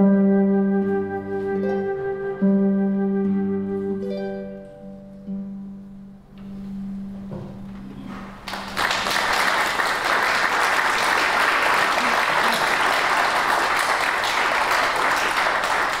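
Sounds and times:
flute and harp note: 0.0 - 5.6
audience applauding: 8.4 - 16.0.

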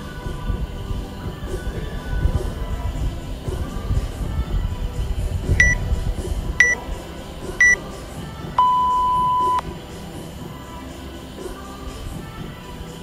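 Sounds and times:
long lower timer beep: 5.6 - 5.8, 8.6 - 9.6
short high timer beeps: 8.6 - 9.6.

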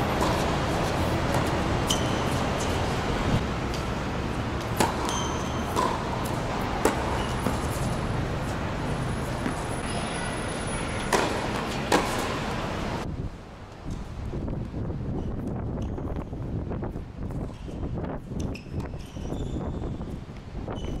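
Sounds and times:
tennis balls struck by rackets: 0.0 - 12.8.

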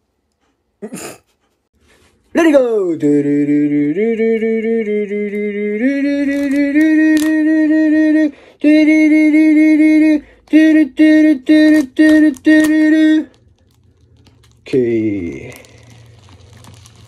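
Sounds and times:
person singing long notes: 2.9 - 13.4.

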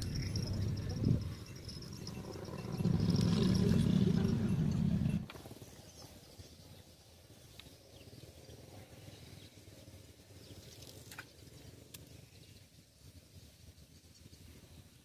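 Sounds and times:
low rumble: 0.0 - 5.3.

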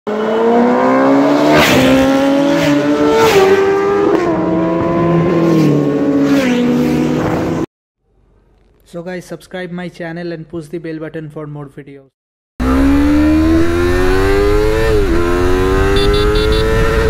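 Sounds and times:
engine revving through gear changes: 0.1 - 7.5, 12.6 - 17.0.

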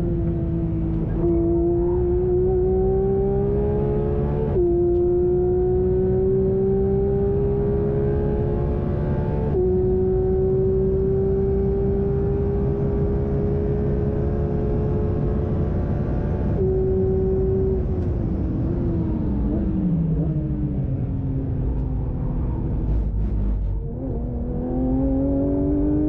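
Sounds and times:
car engine at high revs: 0.0 - 26.0
wind and road noise: 0.0 - 26.0.

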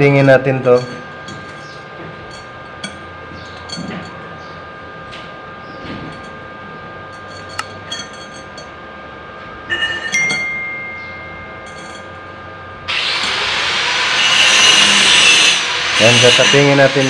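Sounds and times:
metal tube clinking on tiles: 11.6 - 12.1.

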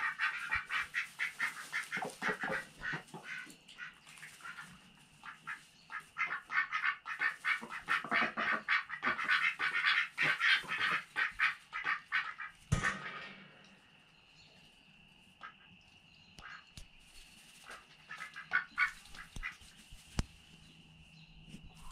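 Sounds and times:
ducks quacking: 0.0 - 13.5, 15.4 - 15.7, 17.6 - 19.7.

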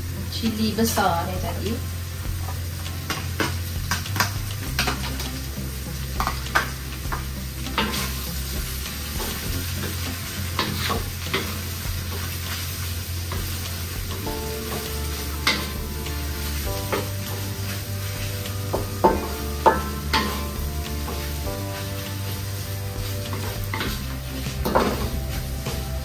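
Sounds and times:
food sizzling in a pan: 0.0 - 26.0
spatula scraping a frying pan: 2.0 - 26.0.

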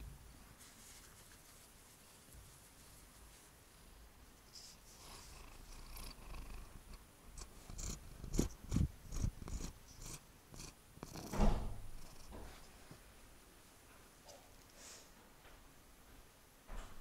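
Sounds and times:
bumps and rubbing on camera: 0.6 - 3.5, 7.4 - 12.9
cat purring: 4.5 - 12.7.

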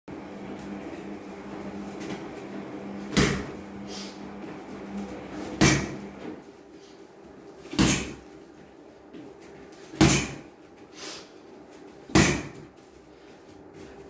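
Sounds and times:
punches thudding on water bag: 10.0 - 10.5, 12.1 - 12.7.

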